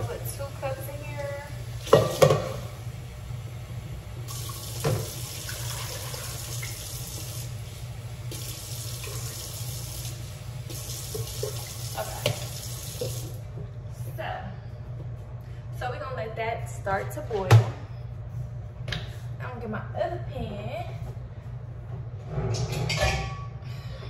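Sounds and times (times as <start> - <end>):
faucet running into pot: 0.0 - 2.8, 4.2 - 13.4.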